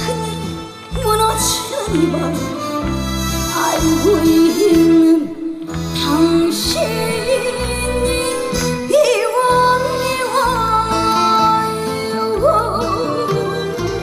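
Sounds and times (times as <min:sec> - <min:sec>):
woman singing into microphone: 0:00.0 - 0:02.7, 0:03.5 - 0:14.0
instrumental accompaniment: 0:00.0 - 0:14.0.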